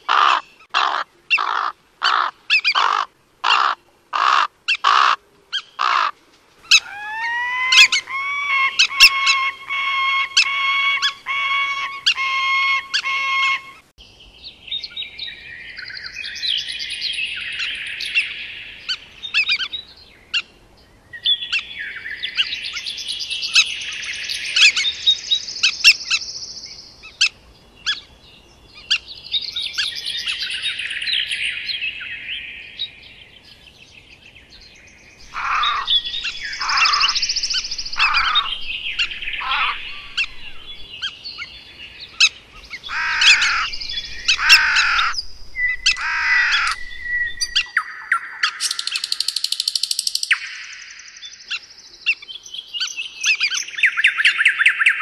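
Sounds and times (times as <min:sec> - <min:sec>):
songbirds singing and chirping: 0:00.0 - 0:55.0
bird calls sliding downward in pitch: 0:06.7 - 0:13.8.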